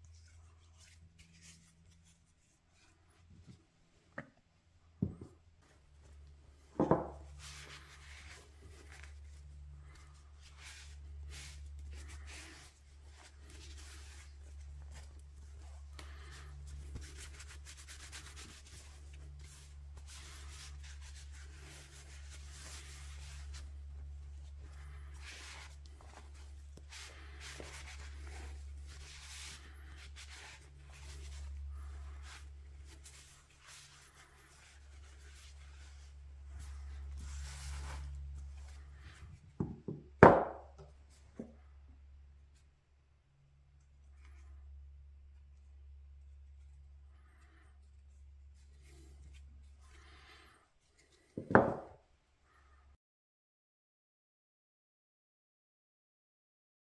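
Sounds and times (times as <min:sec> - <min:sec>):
cloth rubbing wood: 0:05.2 - 0:39.4.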